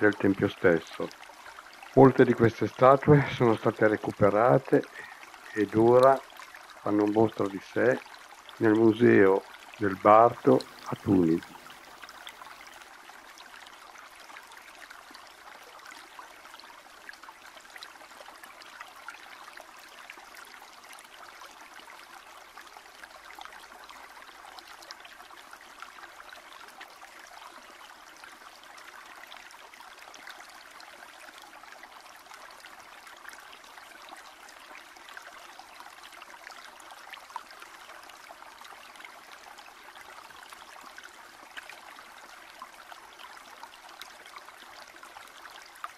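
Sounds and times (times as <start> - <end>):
running water flowing: 0.0 - 27.1.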